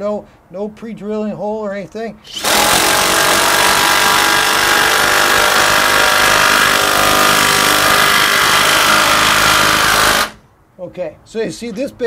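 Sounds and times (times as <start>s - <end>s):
impact driver hammering: 2.3s - 10.4s.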